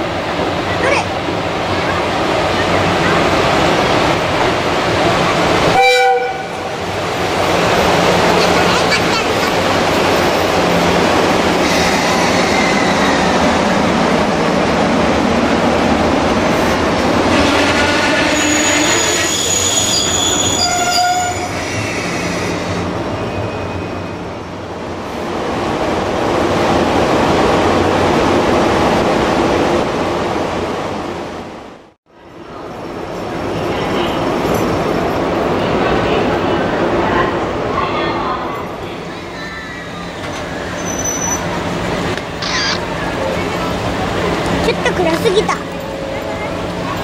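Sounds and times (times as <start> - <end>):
train wheels rumbling on rail: 0.0 - 47.0
brake squeal: 18.3 - 22.6, 39.4 - 41.6.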